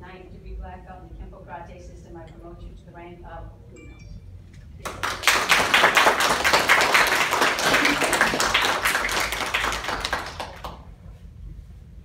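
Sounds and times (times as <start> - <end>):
group applauding: 4.8 - 10.9.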